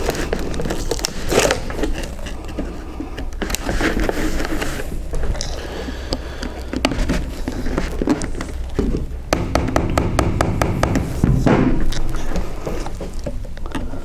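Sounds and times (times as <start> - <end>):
plastic wedges tapping and clicking: 5.2 - 14.0.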